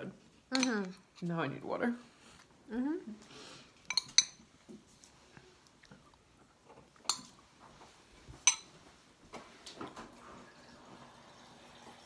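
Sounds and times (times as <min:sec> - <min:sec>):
metal spoon clinking against bowl: 0:00.5 - 0:01.0, 0:03.9 - 0:04.4, 0:08.4 - 0:08.7.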